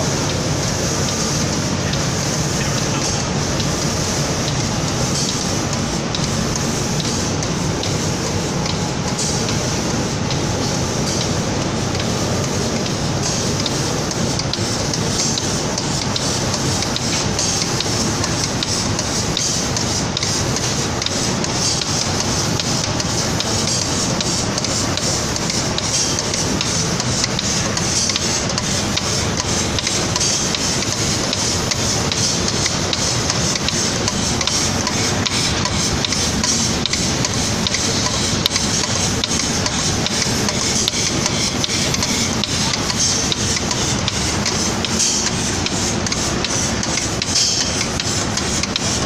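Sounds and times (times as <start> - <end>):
machinery noise: 0.0 - 6.1.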